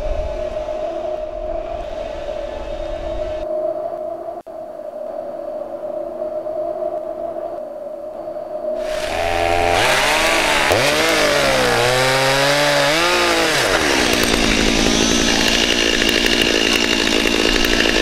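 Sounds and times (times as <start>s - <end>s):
chainsaw cutting brush: 8.8s - 18.0s.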